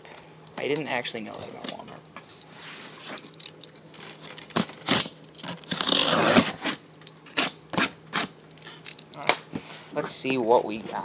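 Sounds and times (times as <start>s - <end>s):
packing tape tearing: 3.0s - 9.4s.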